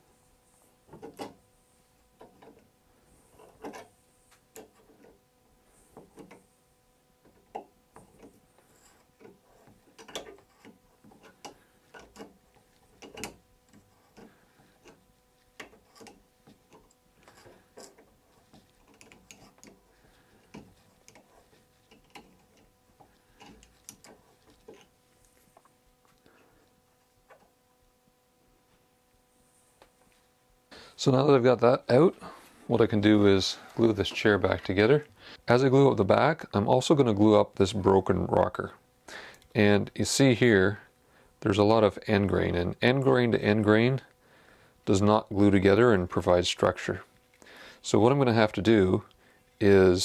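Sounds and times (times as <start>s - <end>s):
pliers clicking and scraping metal: 7.2s - 15.0s, 15.6s - 24.9s
screw grinding in wood: 8.0s - 24.9s.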